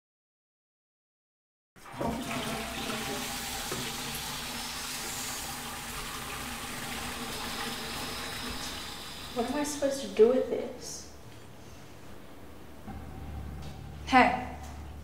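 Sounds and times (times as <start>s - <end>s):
toilet flushing: 1.8s - 10.2s.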